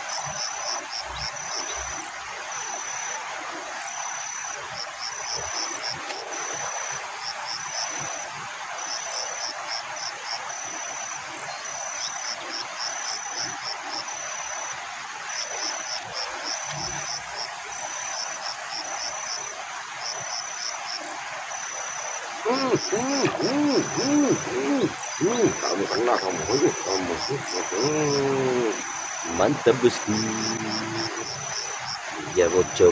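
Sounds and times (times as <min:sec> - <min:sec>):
steady outdoor hiss: 0:00.0 - 0:32.9
insect singing: 0:21.6 - 0:32.9.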